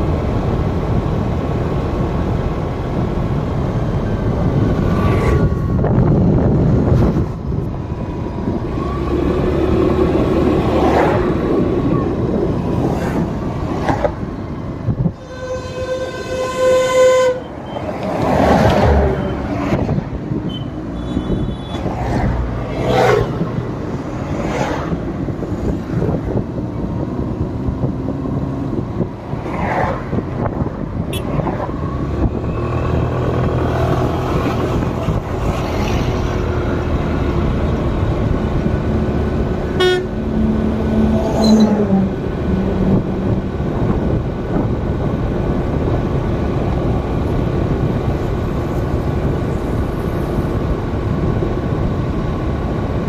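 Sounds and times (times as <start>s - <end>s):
highway traffic: 0.0s - 53.0s
short horn toots: 15.2s - 17.9s, 39.8s - 40.1s.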